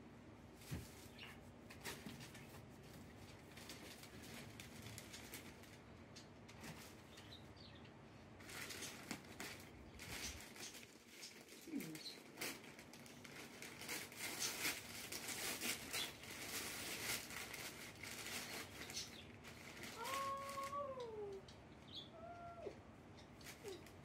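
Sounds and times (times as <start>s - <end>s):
wrapping paper rustling and tearing: 1.8s - 5.9s, 8.4s - 21.4s, 23.4s - 24.0s
drawn-out falling call: 20.0s - 21.4s.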